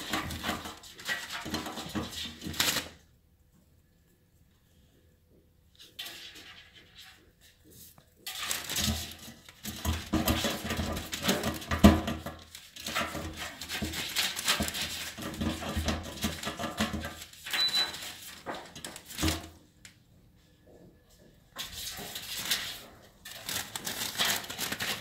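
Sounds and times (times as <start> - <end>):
ferret scrabbling at a bin: 8.3 - 19.5
plastic bin bag rustling: 8.3 - 19.6, 21.6 - 25.0.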